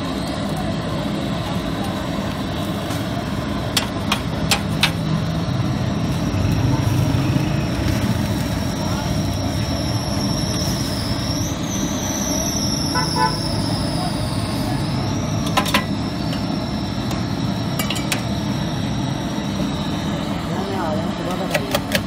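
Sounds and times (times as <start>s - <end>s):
constant high whine: 0.0s - 22.0s
low traffic rumble: 0.0s - 22.0s
short horn toot: 12.9s - 13.4s
metal spatula clinking on griddle: 17.8s - 18.2s.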